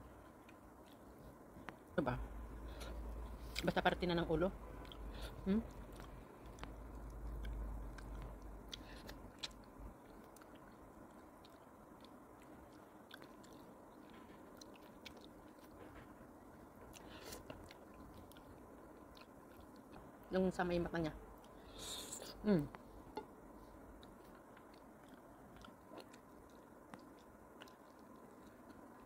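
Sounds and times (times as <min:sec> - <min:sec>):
chewing and sucking: 0:04.8 - 0:20.1, 0:24.0 - 0:29.0.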